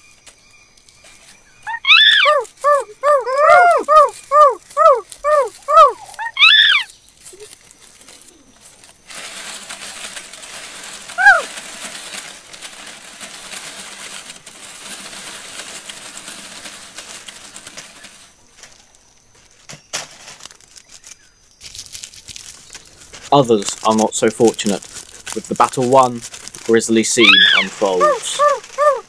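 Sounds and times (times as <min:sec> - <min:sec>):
rustling of leaves and branches: 0:00.0 - 0:29.0
sharp scream-like call: 0:01.7 - 0:06.9, 0:11.2 - 0:11.5, 0:27.2 - 0:29.0.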